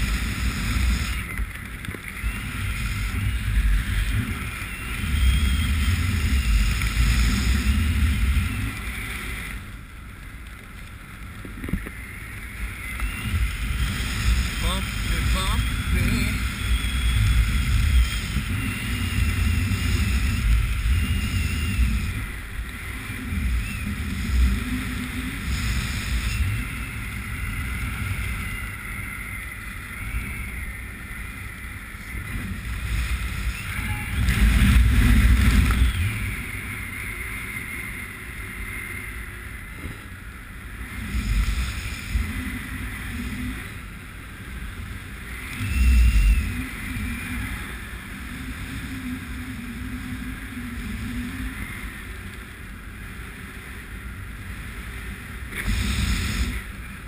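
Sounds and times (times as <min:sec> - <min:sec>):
faint wavering whistle: 0:02.1 - 0:09.5, 0:11.9 - 0:32.4, 0:33.2 - 0:39.3, 0:45.2 - 0:52.0
wind buffeting microphone: 0:11.2 - 0:39.0.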